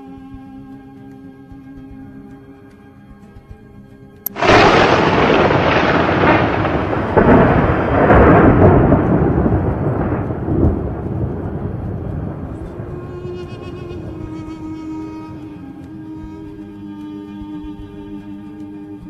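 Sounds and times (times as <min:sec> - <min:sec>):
thunder crack: 0:04.3 - 0:15.5
rolling thunder rumble: 0:04.3 - 0:16.3.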